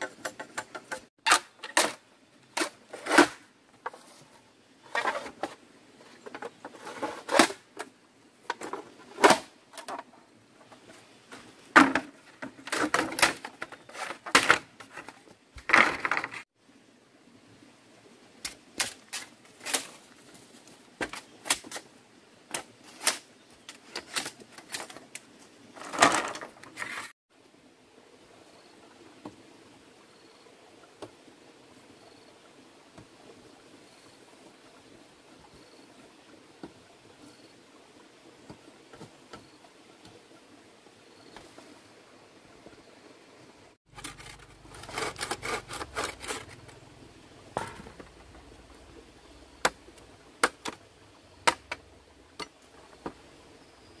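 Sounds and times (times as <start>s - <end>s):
machete chopping bamboo: 51.4s - 51.8s.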